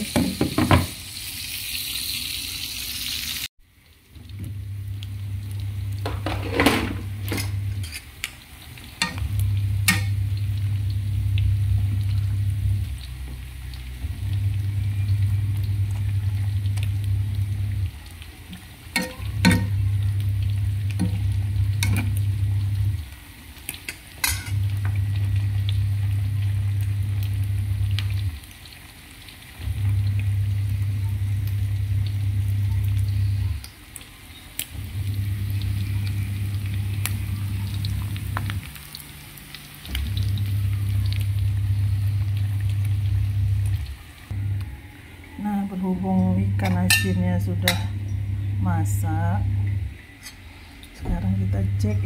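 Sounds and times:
frying sizzle: 0.0 - 52.0
low hum: 9.0 - 23.2, 24.2 - 28.4, 29.6 - 33.7, 34.7 - 39.0, 39.8 - 52.0.

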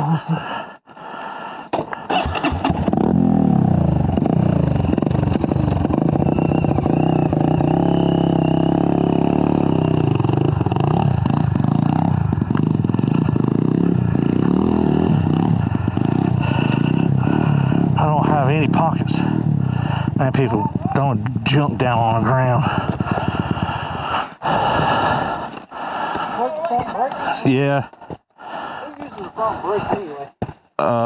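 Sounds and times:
dirt bike engine revving: 2.1 - 25.5
clatter: 4.1 - 7.7, 10.2 - 13.5.

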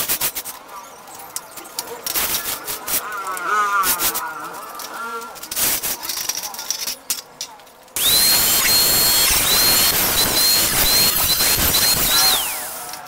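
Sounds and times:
angle grinder cutting steel: 8.0 - 13.0
disc hissing on steel: 8.0 - 13.0.

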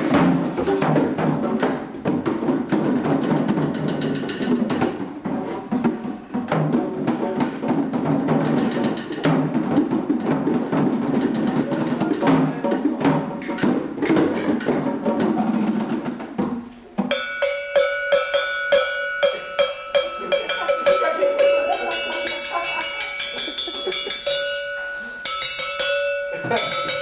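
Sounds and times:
hand drums: 0.0 - 27.0
ringing metal bell percussion: 17.1 - 27.0.

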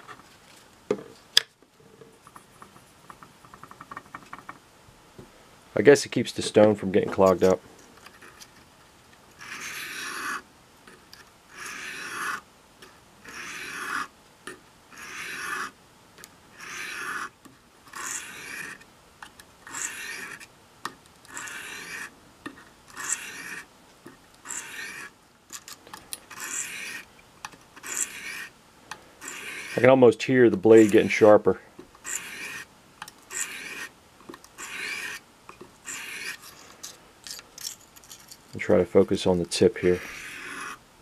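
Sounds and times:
knife blade rasping on whetstone: 9.4 - 10.4, 11.5 - 12.4, 13.2 - 14.1, 15.0 - 15.8, 16.6 - 17.3, 17.9 - 18.8, 19.7 - 20.5, 21.3 - 22.1, 22.9 - 23.7, 24.4 - 25.1, 26.3 - 27.1, 27.8 - 28.5, 29.2 - 29.9, 32.0 - 32.7, 33.3 - 33.9, 34.6 - 35.2, 35.8 - 36.7, 40.0 - 40.8.

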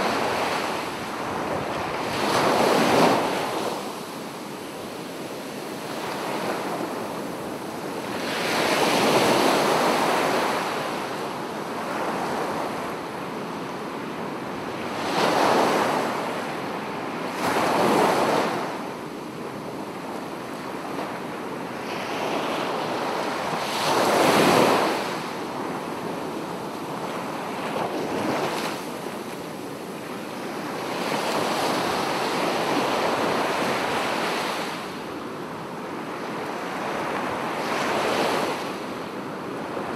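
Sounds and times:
sea waves breaking on beach: 0.0 - 13.1, 21.7 - 35.2.

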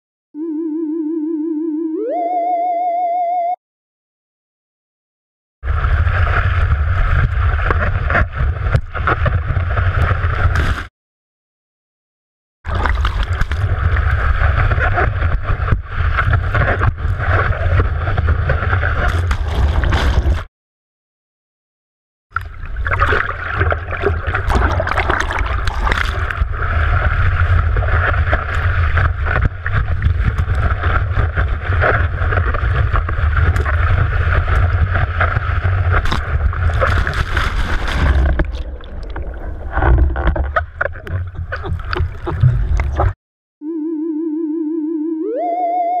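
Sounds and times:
warbling electronic tone: 0.4 - 3.6, 43.6 - 46.0
water rushing and splashing: 22.4 - 43.2.

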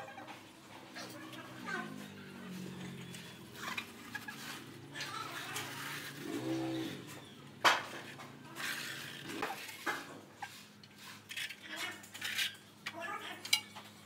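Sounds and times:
trowel scraping mortar: 8.0 - 11.6.

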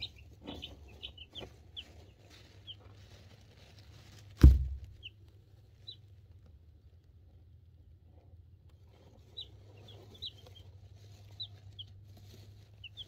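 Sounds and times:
chicks peeping: 0.0 - 6.4, 8.7 - 13.0
loud low thump: 4.4 - 5.0.

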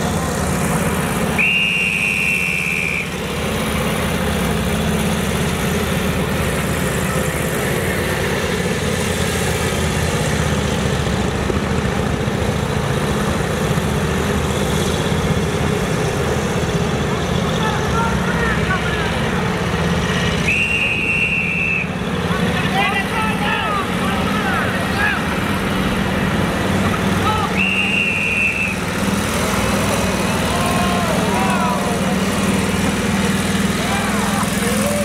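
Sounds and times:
motorcycle engines running: 0.0 - 35.0
motorcycle passing by: 22.0 - 35.0.

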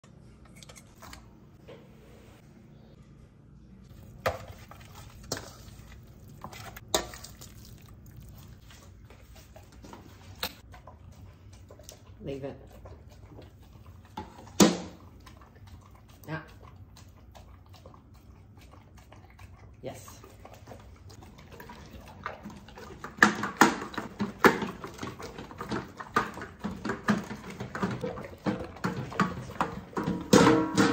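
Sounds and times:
meat squishing: 3.9 - 10.0
dog eating and licking bowl: 3.9 - 30.9
metal bowl clattering: 4.0 - 8.5, 21.2 - 30.9.

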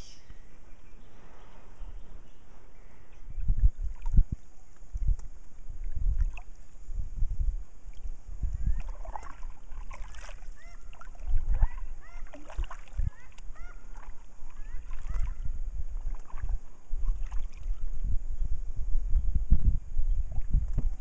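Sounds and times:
birds chirping: 0.0 - 3.5, 13.0 - 15.4
wind rumble on microphone: 0.0 - 21.0.

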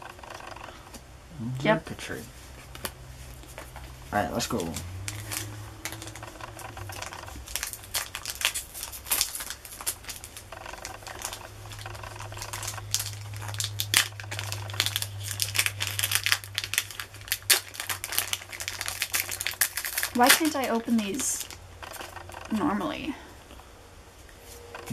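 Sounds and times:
low steady hum: 0.0 - 24.9
foil wrapper crinkling and tearing: 2.6 - 22.4.

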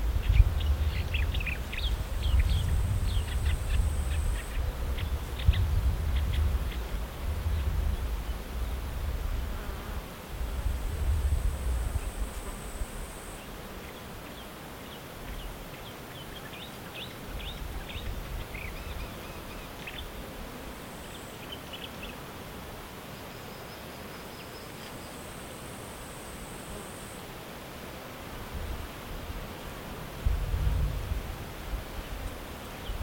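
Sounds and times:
wind rumbling on microphone: 0.0 - 13.2, 17.3 - 20.3, 30.2 - 33.0
high insect buzz: 0.1 - 30.6
songbird calling: 0.2 - 6.8.

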